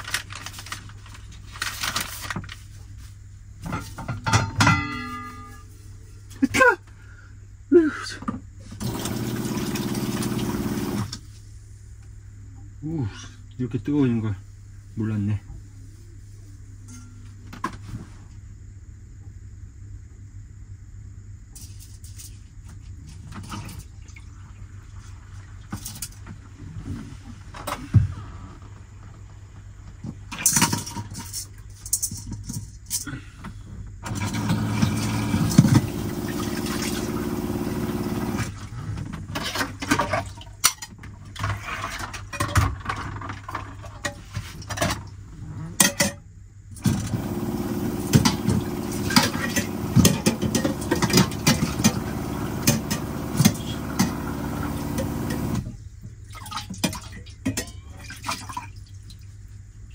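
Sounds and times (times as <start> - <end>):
metal pots and pans clattering: 3.7 - 5.6
water running from a tap: 8.8 - 11.0, 34.5 - 38.4, 47.2 - 55.6
electric water pump humming: 8.8 - 11.2, 34.1 - 38.7, 46.8 - 55.8.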